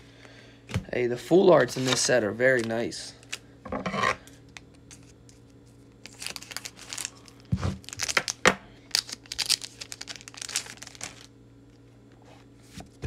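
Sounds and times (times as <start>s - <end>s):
wrapper crinkling and tearing: 4.5s - 11.3s.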